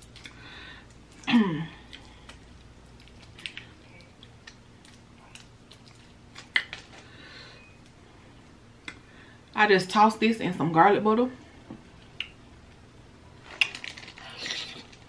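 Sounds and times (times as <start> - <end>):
chewing: 0.0 - 7.0.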